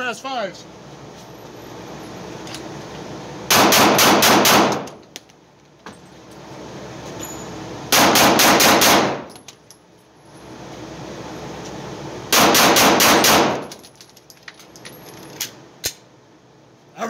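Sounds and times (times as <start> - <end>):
pistol shots ringing indoors: 3.5 - 4.9, 7.9 - 9.3, 12.3 - 13.7.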